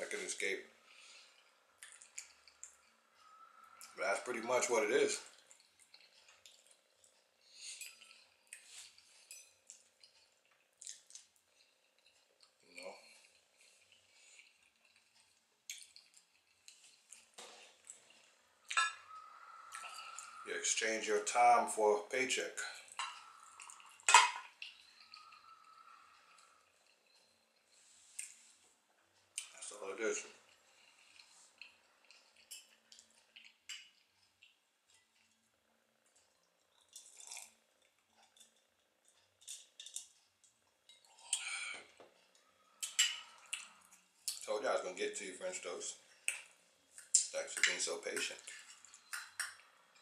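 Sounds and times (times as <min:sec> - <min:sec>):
fork and plates clinking: 0:18.7 - 0:19.1, 0:22.9 - 0:24.5, 0:42.8 - 0:43.4.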